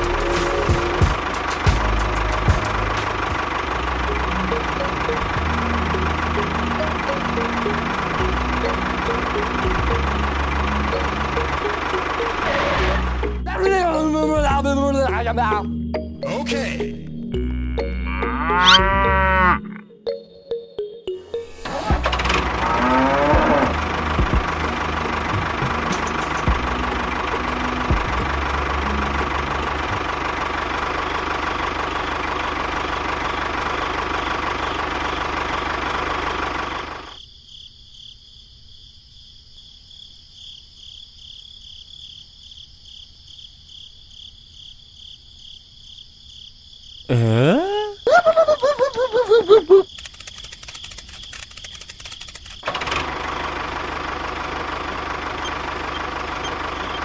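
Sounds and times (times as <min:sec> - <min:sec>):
model engine running: 0:21.8 - 0:37.2, 0:49.9 - 0:57.0
fast crackling: 0:49.9 - 0:52.7.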